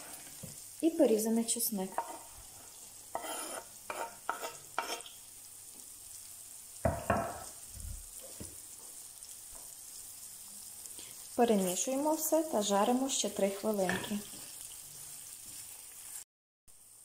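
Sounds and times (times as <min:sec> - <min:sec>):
chicken sizzling in a frying pan: 0:00.0 - 0:17.0
knife scraping wooden board: 0:03.1 - 0:05.0
wooden spatula stirring: 0:03.1 - 0:05.1.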